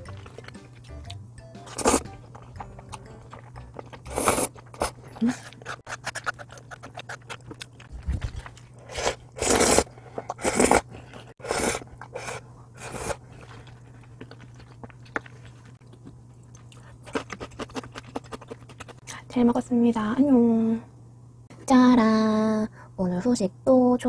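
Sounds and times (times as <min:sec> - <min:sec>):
loud slurping: 0:04.1 - 0:04.9, 0:08.8 - 0:13.2.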